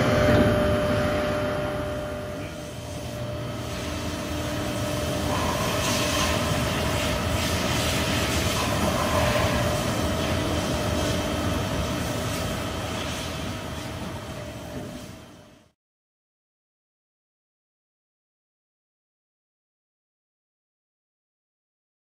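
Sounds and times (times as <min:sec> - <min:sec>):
hydraulic press machine hum: 0:00.0 - 0:15.7
mid-pitched machine whine: 0:00.0 - 0:15.8
hydraulic hiss: 0:02.7 - 0:11.1.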